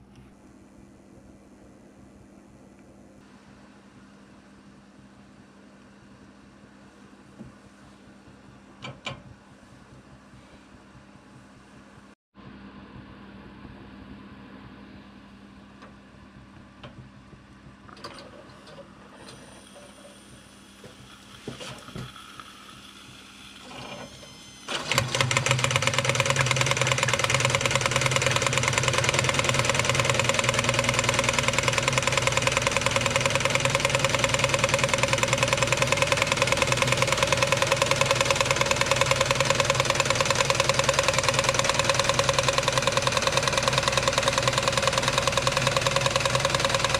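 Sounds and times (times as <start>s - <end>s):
small clicks of heating boiler: 15.7s - 18.8s
toy steam engine clatter: 24.7s - 46.9s.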